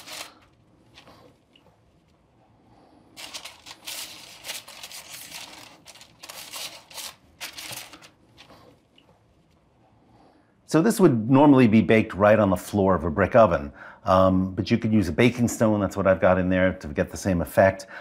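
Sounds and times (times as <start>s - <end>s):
parchment paper crinkling: 0.0s - 1.4s, 3.2s - 8.7s.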